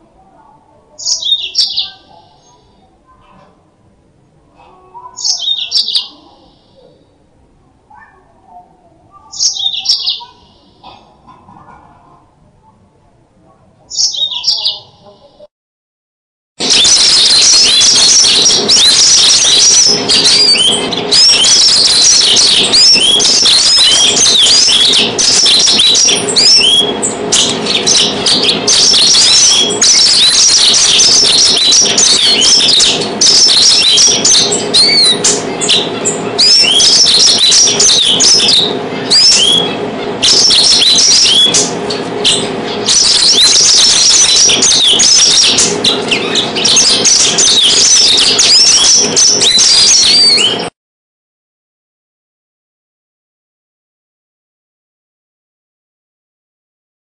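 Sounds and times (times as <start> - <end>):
canary singing: 0.0 - 3.2, 4.5 - 7.1, 7.9 - 11.1, 13.9 - 15.5, 16.6 - 50.7.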